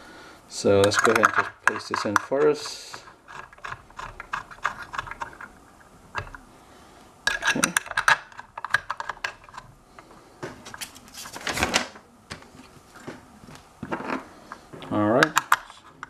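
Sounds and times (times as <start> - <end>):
metal parts clicking and tapping: 0.8 - 5.5, 6.1 - 6.4, 7.2 - 9.7, 13.8 - 16.0.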